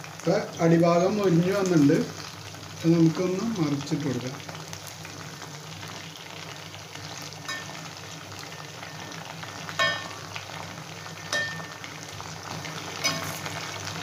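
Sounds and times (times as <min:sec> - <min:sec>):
chicken sizzling in hot oil: 0:00.0 - 0:14.0
spoon clinking against pan: 0:07.5 - 0:07.8, 0:09.8 - 0:10.2, 0:11.3 - 0:11.8, 0:13.0 - 0:13.4.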